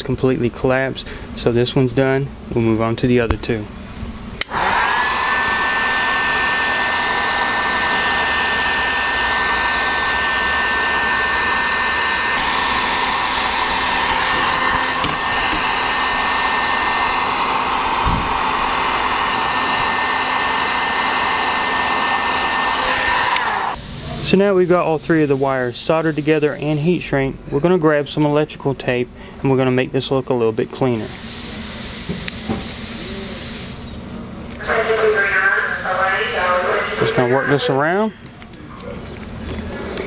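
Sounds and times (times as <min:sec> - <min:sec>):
heat gun fan blowing with whine: 0:00.5 - 0:27.0.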